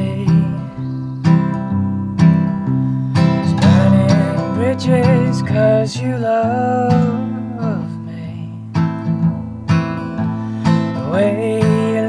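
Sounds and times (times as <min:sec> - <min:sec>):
man singing: 0:00.0 - 0:01.0, 0:03.3 - 0:08.6, 0:10.9 - 0:12.0
acoustic guitar strumming: 0:00.0 - 0:12.0.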